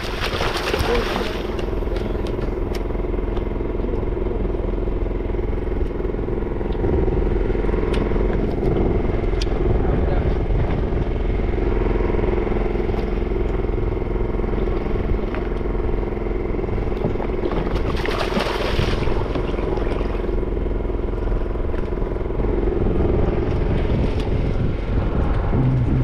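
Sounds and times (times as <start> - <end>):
fish splashing: 0.0 - 1.9, 17.6 - 20.3
boat engine droning: 0.0 - 26.0.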